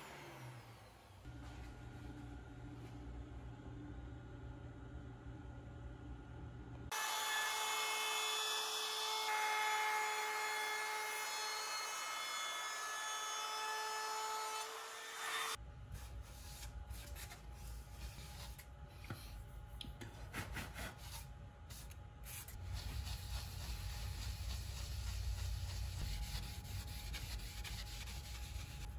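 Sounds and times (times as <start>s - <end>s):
router cutting wood: 6.9s - 15.6s.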